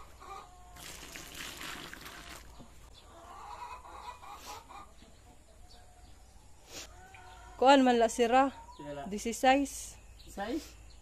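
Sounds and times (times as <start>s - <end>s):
chickens clucking: 0.0s - 0.8s, 2.5s - 7.6s
liquid pouring onto rice bran: 0.8s - 2.6s.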